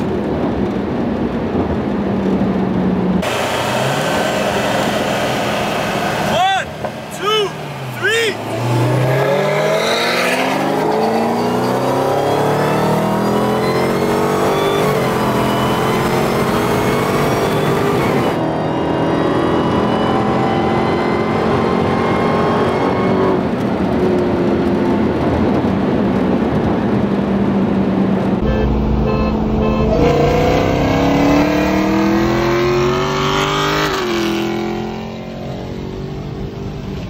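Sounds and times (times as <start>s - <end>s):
car engine accelerating: 0.0s - 37.0s.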